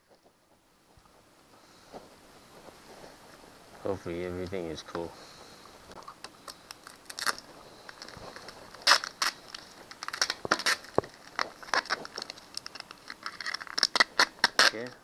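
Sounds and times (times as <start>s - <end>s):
plastic film crinkling: 6.4s - 15.0s.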